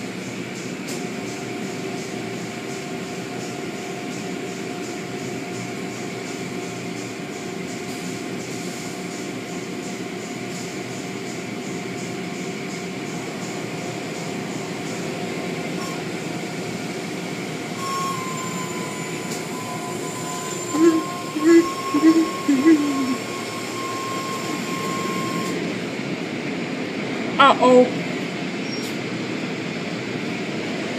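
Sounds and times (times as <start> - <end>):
car wash machinery droning: 0.0 - 30.9
steady high tone: 17.8 - 25.7.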